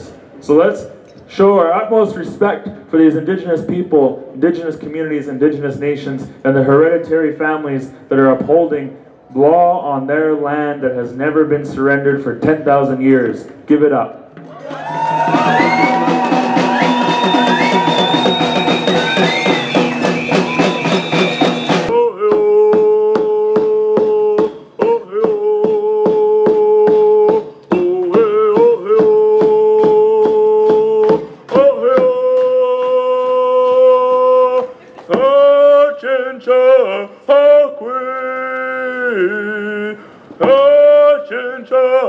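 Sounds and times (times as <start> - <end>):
steady drum beats: 14.3 - 35.4
crowd cheering and whooping: 14.5 - 21.9.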